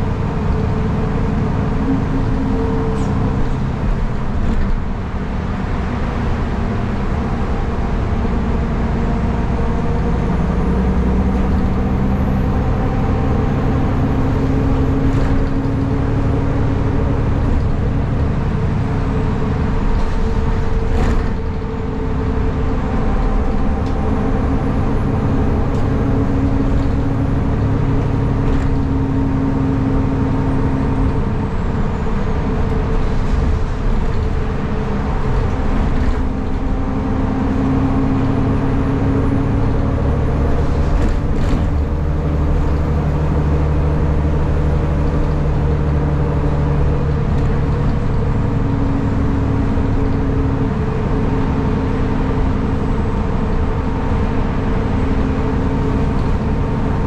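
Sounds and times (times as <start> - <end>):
bus engine and drivetrain hum: 0.0 - 57.0.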